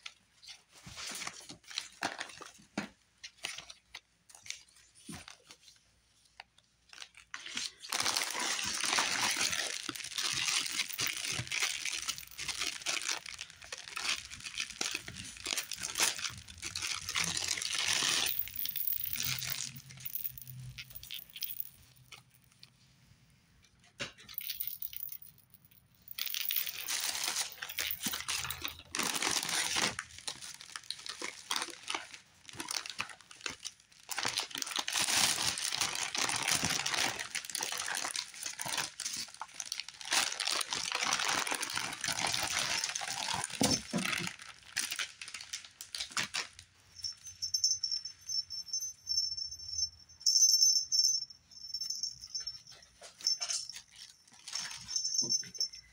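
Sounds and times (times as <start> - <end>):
plastic gift bag crinkling: 6.8 - 22.7, 24.3 - 48.8, 51.6 - 55.8
small jingle bell ringing: 18.1 - 22.1, 24.4 - 28.8, 46.9 - 55.9.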